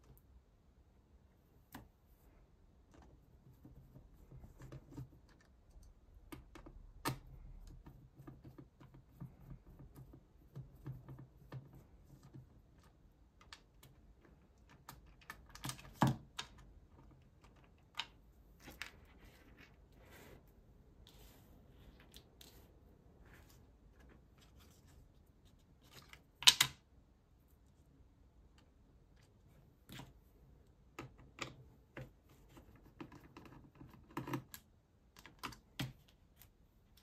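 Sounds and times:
small clicks and taps: 2.9 - 19.1, 28.4 - 37.0.

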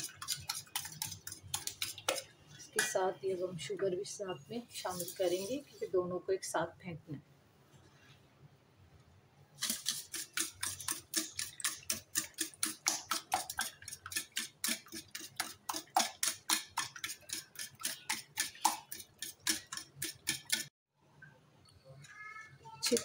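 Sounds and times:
whisk clicking against metal bowl: 0.0 - 3.0, 9.6 - 20.7.

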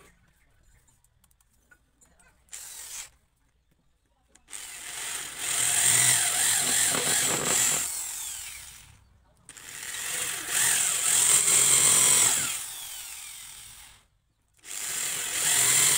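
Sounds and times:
electric drill boring into wood: 2.5 - 3.1, 4.5 - 8.9, 9.5 - 14.0, 14.6 - 15.9
brief drill whir: 4.5 - 8.9, 9.5 - 14.0.

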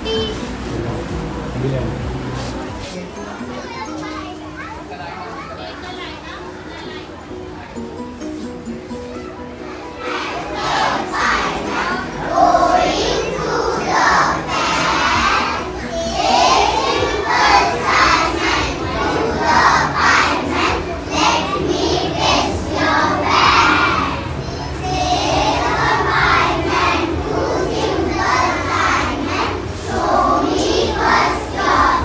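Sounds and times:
children shouting together: 9.1 - 32.0.

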